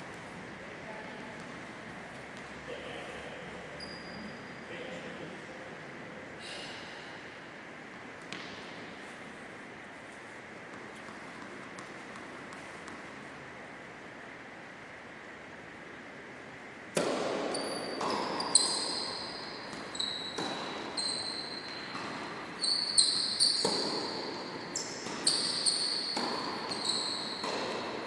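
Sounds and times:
tennis ball bouncing: 0:08.2 - 0:08.8, 0:10.7 - 0:13.2, 0:16.9 - 0:28.0
tennis racket hits: 0:23.2 - 0:28.0.

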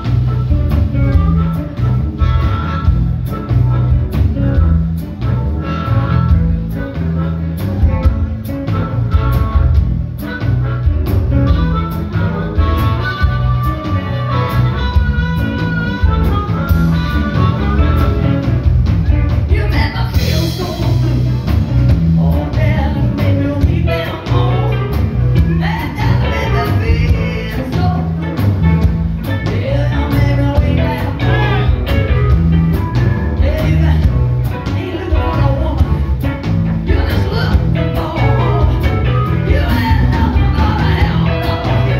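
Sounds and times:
harmonica solo: 0:00.0 - 0:18.7
blues band playing: 0:00.0 - 0:41.9.

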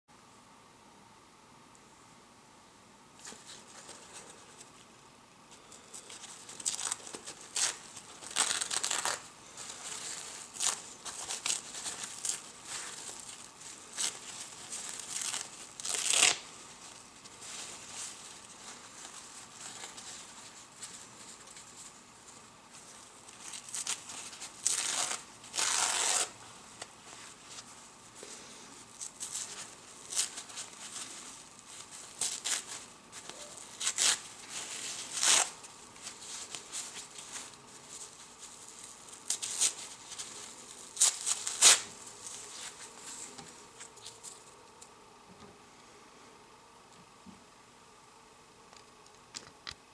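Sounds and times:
paper crumpling: 0:05.9 - 0:44.6
paper towel tearing: 0:06.4 - 0:20.8, 0:23.3 - 0:27.7, 0:29.0 - 0:43.0.

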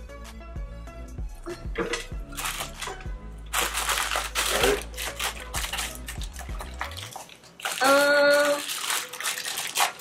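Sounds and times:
plastic pouch crinkling: 0:02.3 - 0:10.0.

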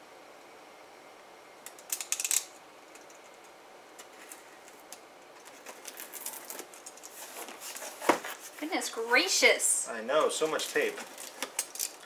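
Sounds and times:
packing tape scratchy clicks: 0:10.3 - 0:12.0.

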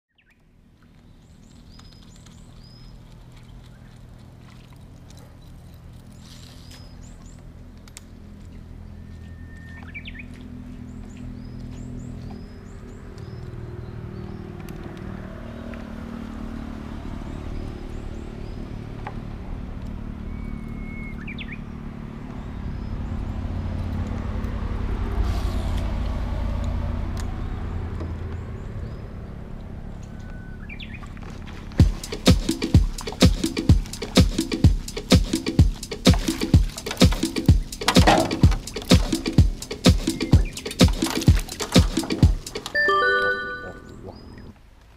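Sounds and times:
birds whistling and chirping: 0:08.5 - 0:10.4, 0:20.2 - 0:21.7, 0:30.0 - 0:31.1, 0:37.2 - 0:44.5
small bird chirping: 0:32.0 - 0:44.5.

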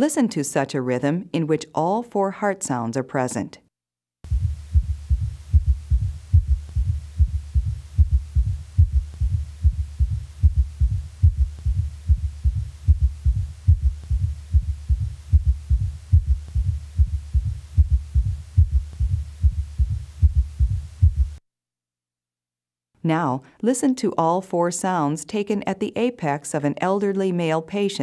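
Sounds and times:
heartbeat low thuds: 0:04.2 - 0:21.4
low steady hum: 0:04.3 - 0:21.4.

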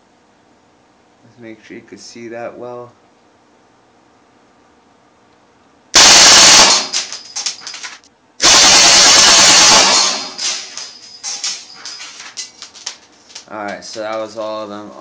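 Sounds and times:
bb rifle full auto bursts: 0:06.0 - 0:07.2, 0:08.4 - 0:10.6.

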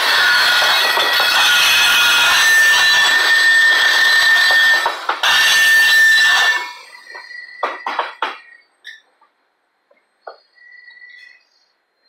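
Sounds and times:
steady high tone: 0:00.0 - 0:09.0
freight cars rolling on rails: 0:00.0 - 0:11.4.

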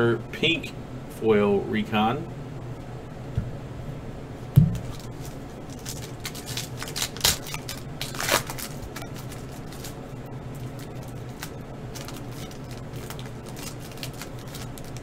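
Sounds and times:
foil wrapper crinkling and tearing: 0:04.8 - 0:15.0.

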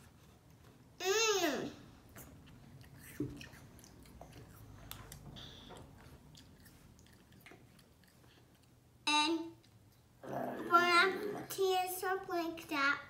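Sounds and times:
child chewing apple: 0:02.0 - 0:09.0, 0:09.6 - 0:11.6.

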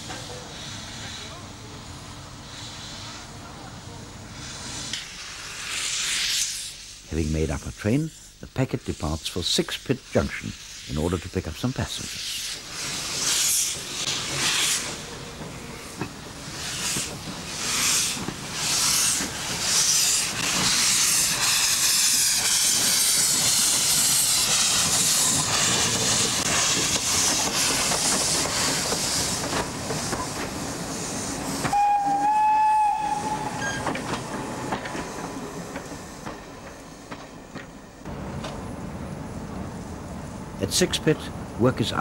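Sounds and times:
steam hiss: 0:00.0 - 0:41.2
steam locomotive exhaust chuffs: 0:11.9 - 0:38.8
steam whistle blast: 0:31.6 - 0:34.0.

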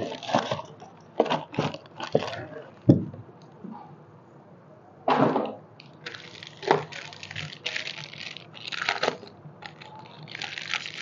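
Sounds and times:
plastic packaging crinkling: 0:00.0 - 0:03.0, 0:05.8 - 0:11.0.

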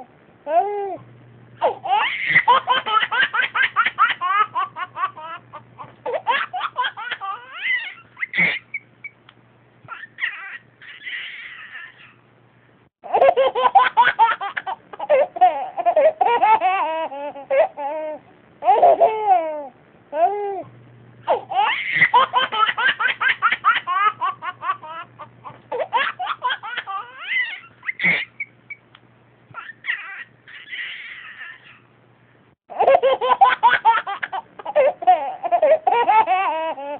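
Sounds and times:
person laughing hard: 0:28.0 - 0:28.5.

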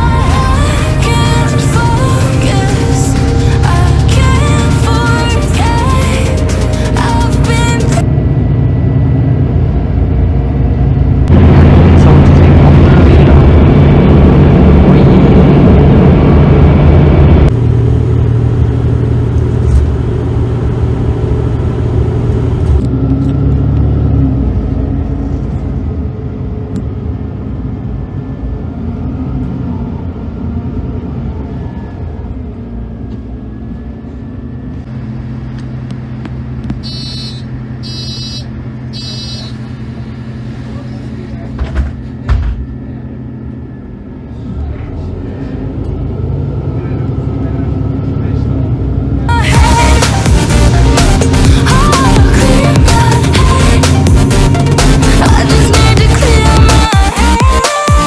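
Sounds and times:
bus engine and road rumble: 0:00.0 - 0:58.0
short high door beeps: 0:36.8 - 0:39.6.

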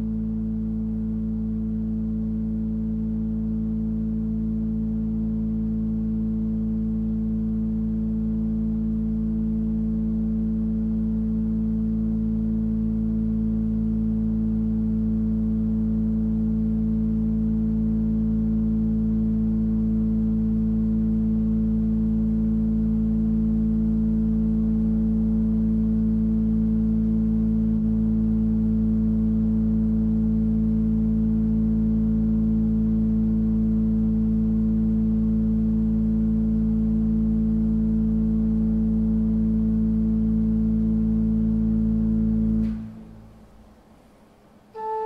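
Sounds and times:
sustained chord music: 0:44.7 - 0:45.0.

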